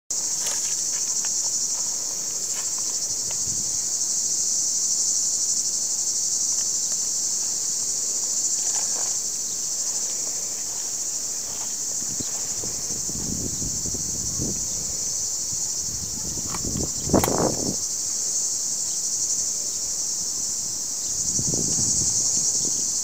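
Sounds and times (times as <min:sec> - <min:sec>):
insects shrilling: 0:00.1 - 0:23.0.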